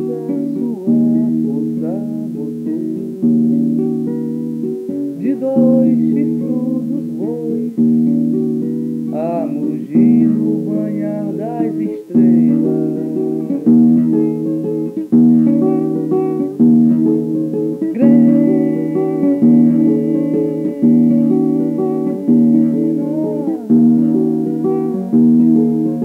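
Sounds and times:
guitar music: 0.0 - 26.0.

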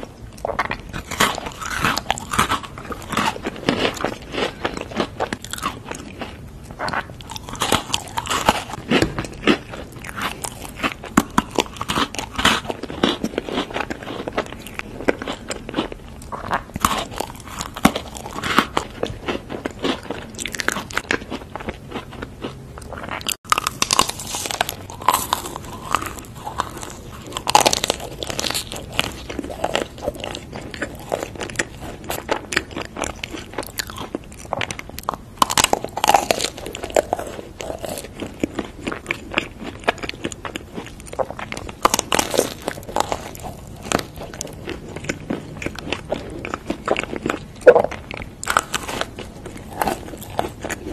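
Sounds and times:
chewing: 0.0 - 50.9
person biting crunchy snacks: 0.0 - 50.9.

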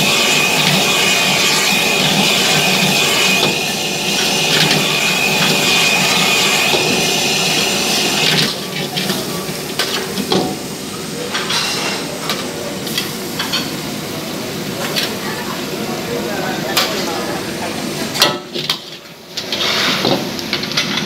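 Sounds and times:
gas burner hissing and whining: 0.0 - 21.0
metal ladle scraping wok: 19.4 - 20.0.

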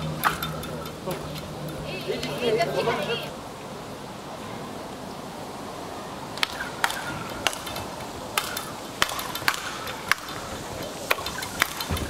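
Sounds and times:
rackets striking a ball: 0.1 - 2.4, 6.4 - 12.0.

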